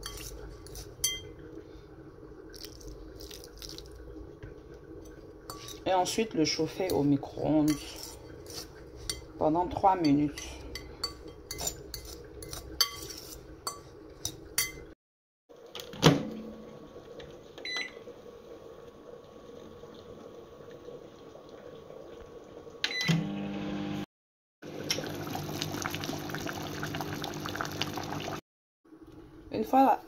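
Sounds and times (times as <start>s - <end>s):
fork scraping a glass bowl: 0.0s - 1.2s, 5.5s - 5.8s, 7.6s - 9.3s, 10.0s - 14.8s
sauce bubbling in a pot: 1.3s - 9.4s, 16.8s - 22.8s, 24.6s - 28.4s
microwave humming: 15.6s - 29.5s.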